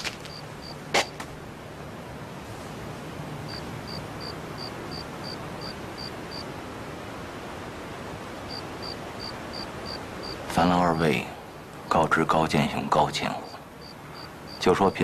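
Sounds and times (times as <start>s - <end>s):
background hiss: 0.0s - 15.0s
cricket chirping: 0.2s - 1.2s, 3.5s - 6.5s, 8.5s - 10.4s, 13.4s - 14.8s.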